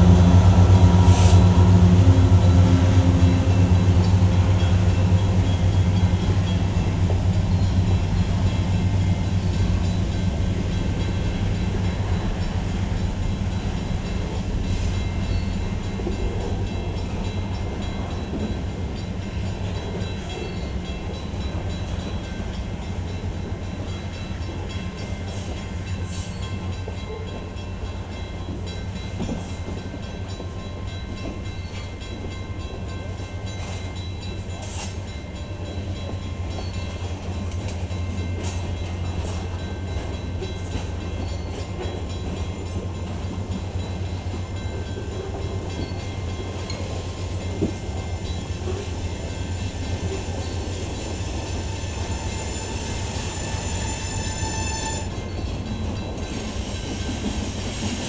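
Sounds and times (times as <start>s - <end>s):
train wheels rumbling on rail: 0.0s - 58.0s
sharp high wheel squeals: 49.6s - 55.4s.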